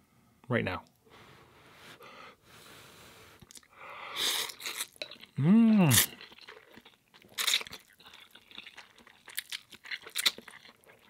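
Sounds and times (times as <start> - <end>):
person slurping noodles: 2.9 - 6.8.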